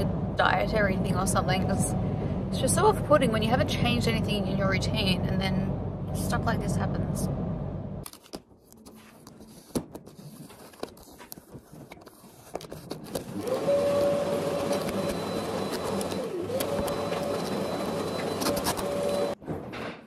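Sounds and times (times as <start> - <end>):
steady motor hum: 13.2 - 19.4.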